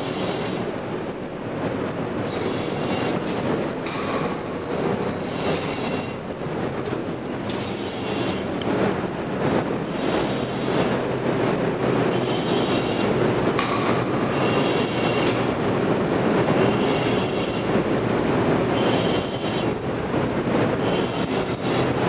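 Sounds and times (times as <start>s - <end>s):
industrial machinery hissing: 0.0s - 22.0s
sharp click: 13.6s - 14.1s, 15.2s - 15.6s.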